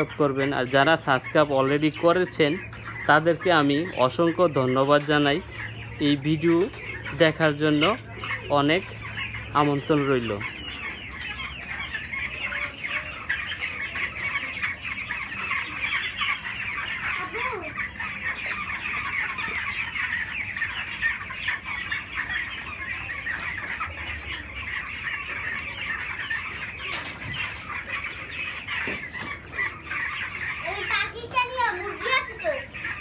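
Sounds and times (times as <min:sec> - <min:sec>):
chicks peeping and cheeping: 0:00.0 - 0:33.0.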